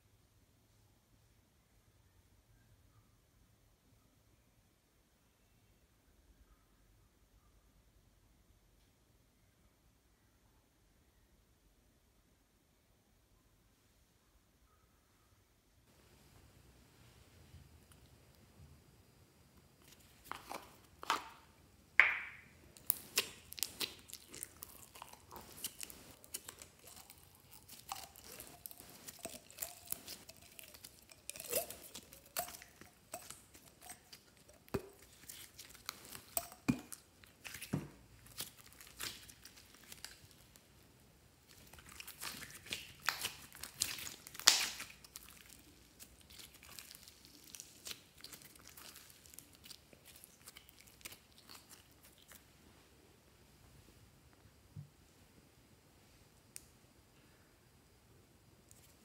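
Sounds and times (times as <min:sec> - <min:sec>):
slime squishing: 0:19.8 - 0:40.6, 0:41.4 - 0:52.5
crackling pops and clicks: 0:42.2 - 0:45.2.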